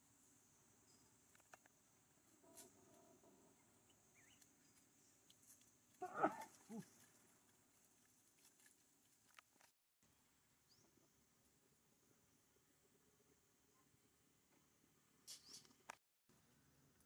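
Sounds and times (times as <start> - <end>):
faint insect hum: 0.0 - 17.0.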